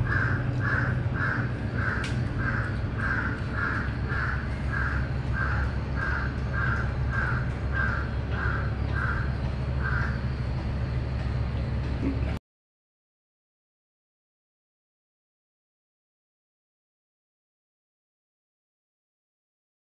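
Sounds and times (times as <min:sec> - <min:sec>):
crow cawing: 0:00.0 - 0:10.3
low rumble: 0:00.0 - 0:12.4.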